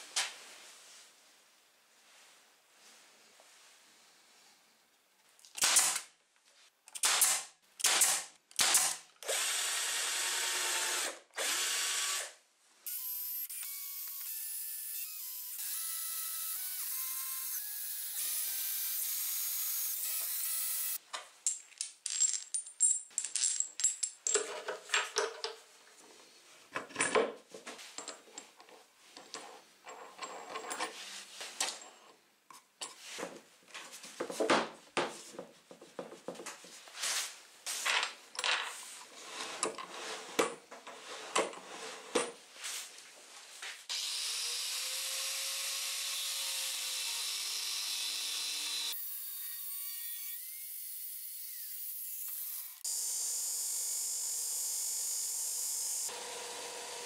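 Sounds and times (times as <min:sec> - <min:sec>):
cordless drill driving screws: 0:08.6 - 0:14.5, 0:43.9 - 0:49.6.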